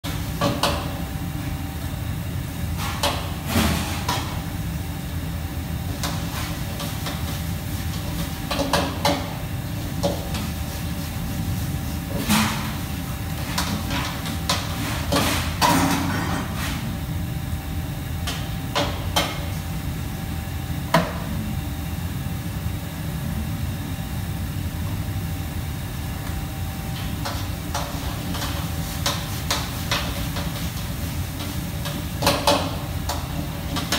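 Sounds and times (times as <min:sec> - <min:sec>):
kitchen fans and machinery hum: 0:00.0 - 0:33.9.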